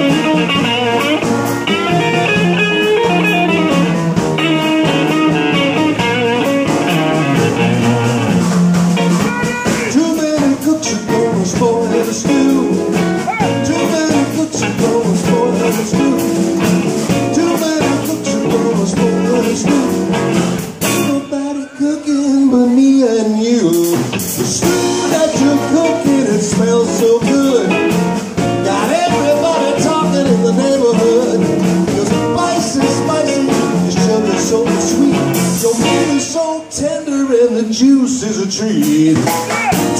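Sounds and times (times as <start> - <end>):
blues band playing: 0.0 - 39.9
sliding guitar line: 0.0 - 39.9
man singing: 9.2 - 39.9.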